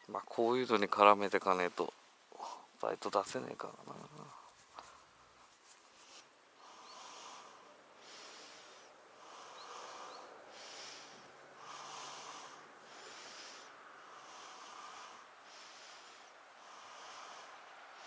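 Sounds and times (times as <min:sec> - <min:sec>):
nasal breathing: 0:04.0 - 0:18.0.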